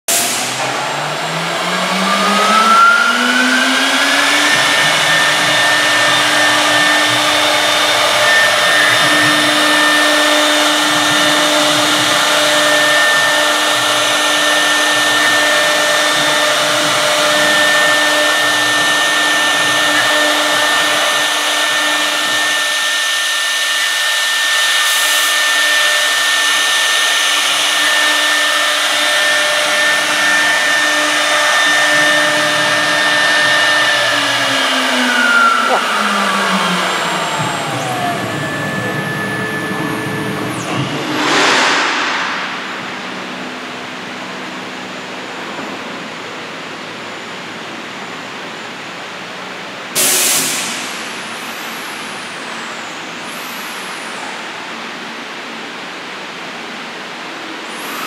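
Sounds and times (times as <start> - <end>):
bit routing wood: 0.1 - 41.2
router spindle whine: 0.1 - 41.5, 56.4 - 58.0.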